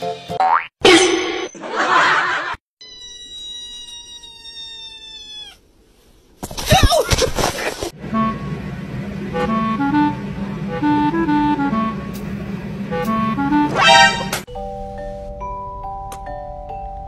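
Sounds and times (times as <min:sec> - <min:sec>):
steady high tone: 0:08.0 - 0:14.5
light music with reedy melody: 0:12.9 - 0:17.0.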